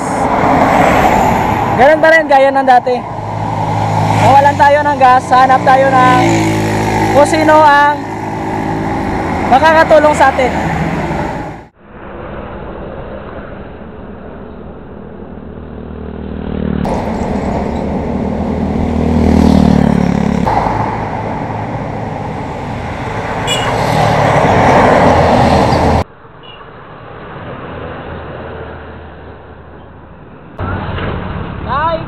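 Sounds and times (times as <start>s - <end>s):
vehicles passing by: 0.0s - 32.0s
motorcycle horn honking: 23.4s - 23.8s.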